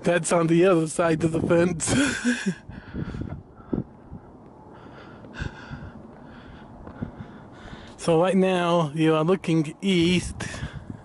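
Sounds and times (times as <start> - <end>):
wind rumble on microphone: 0.0 - 8.4, 9.3 - 11.0
person breathing: 2.0 - 8.0.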